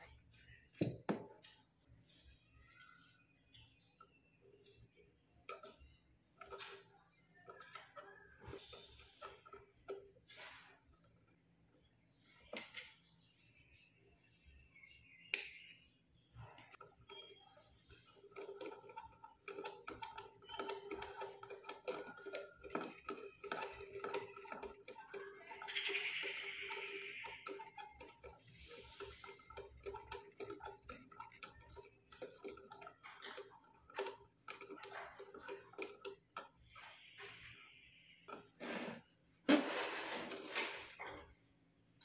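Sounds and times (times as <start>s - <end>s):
hand-cranked winch clicking: 16.8s - 36.6s.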